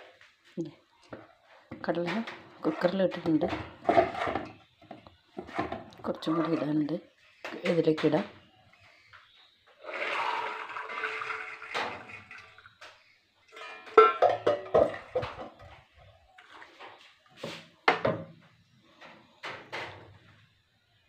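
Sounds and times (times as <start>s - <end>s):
chickpeas and water pouring: 9.8s - 14.1s, 14.7s - 15.4s
metal cookware clattering: 13.5s - 15.8s.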